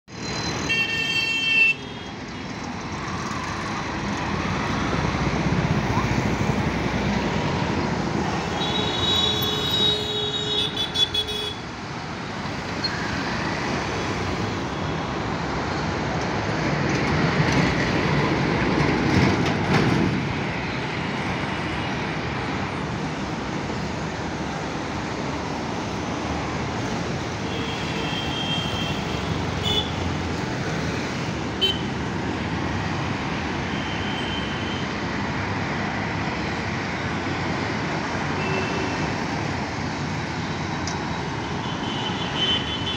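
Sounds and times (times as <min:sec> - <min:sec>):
passing vehicles: 0:00.1 - 0:42.9.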